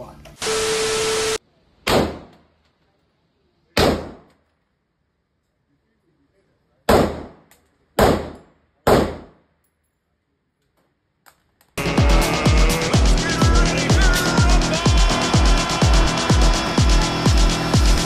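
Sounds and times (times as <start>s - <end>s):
gunshots in enclosed range: 1.8s - 2.6s, 3.7s - 4.5s, 6.8s - 9.6s.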